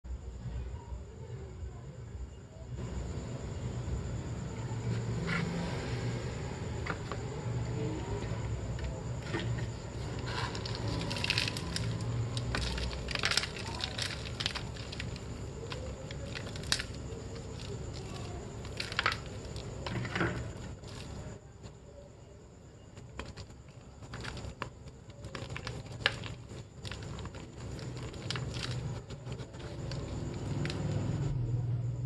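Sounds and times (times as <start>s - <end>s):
chalk blocks crunching and cracking: 8.3s - 21.3s, 23.0s - 31.2s.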